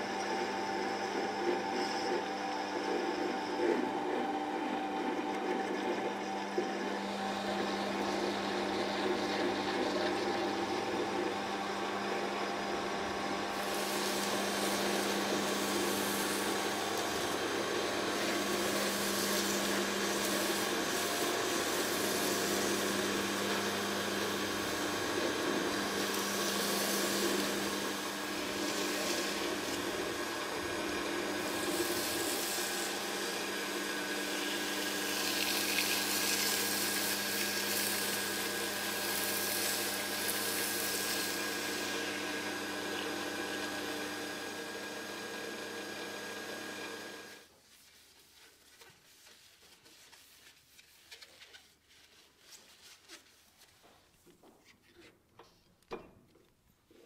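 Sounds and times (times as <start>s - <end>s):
file scraping spinning metal: 0.0s - 44.5s
metal lathe humming: 0.0s - 47.4s.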